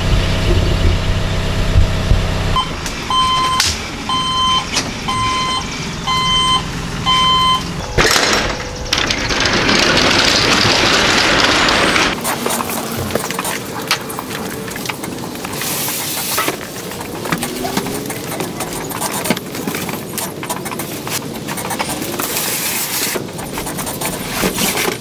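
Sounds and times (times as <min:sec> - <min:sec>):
boxes knocking and scraping: 0:07.8 - 0:25.0.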